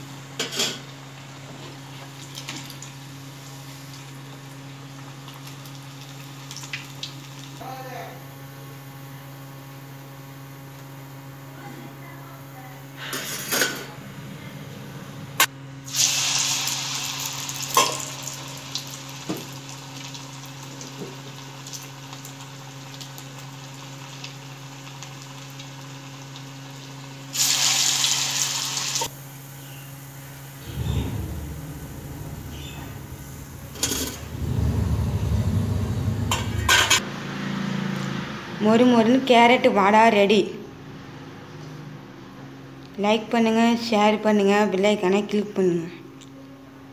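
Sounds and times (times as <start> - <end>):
batter deep-frying in hot oil: 0.0 - 11.3, 15.7 - 31.2.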